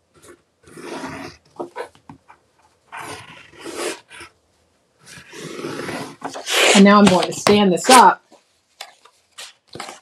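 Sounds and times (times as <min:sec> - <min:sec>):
stylus scraping along paper: 0:00.2 - 0:02.0, 0:02.9 - 0:04.4, 0:05.0 - 0:08.0.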